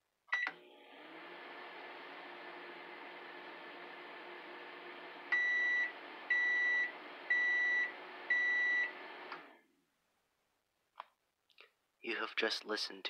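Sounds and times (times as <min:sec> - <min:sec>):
microwave beeps: 0:00.3 - 0:00.6, 0:05.2 - 0:09.5
microwave oven humming: 0:00.4 - 0:09.6.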